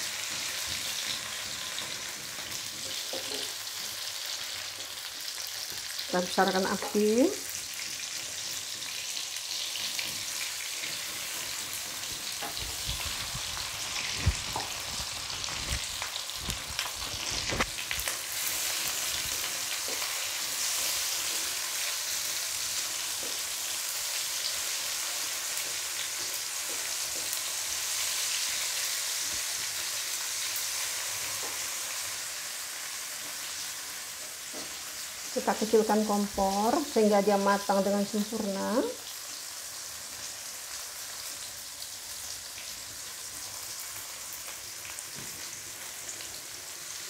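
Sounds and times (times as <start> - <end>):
vegetables sizzling in hot oil: 0.0 - 47.0
spatula scraping and knocking in pan: 0.3 - 4.0, 10.0 - 15.8.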